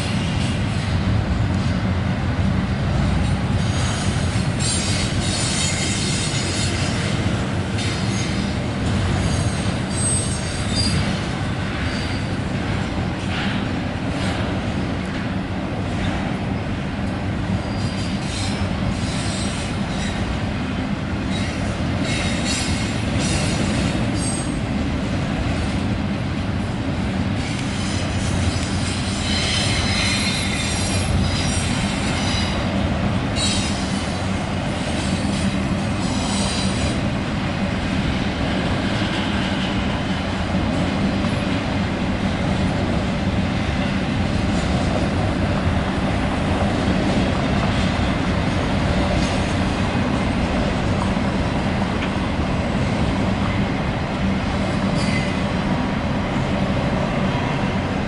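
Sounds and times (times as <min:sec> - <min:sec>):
train wheels rumbling on rail: 0:00.0 - 0:58.0
high-pitched wheel squeal: 0:09.2 - 0:11.1, 0:27.8 - 0:32.6.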